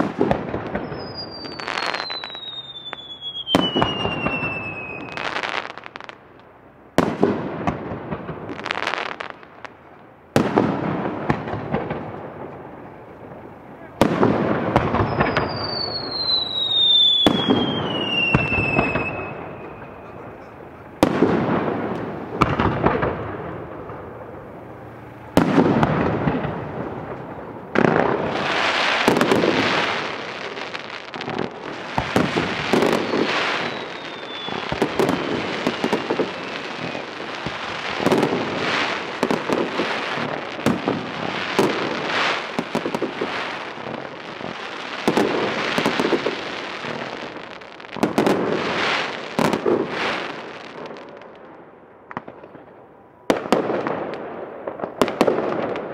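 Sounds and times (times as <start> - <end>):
falling firework whistle: 0.0 - 6.2, 13.9 - 51.1
fireworks bursting with bangs: 0.0 - 55.9
fireworks crackling: 0.0 - 55.9.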